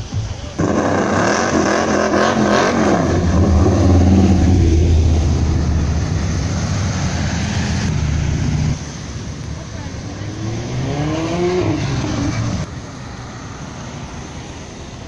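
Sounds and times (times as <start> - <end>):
car engine revving and accelerating: 0.6 - 9.0, 9.6 - 12.7.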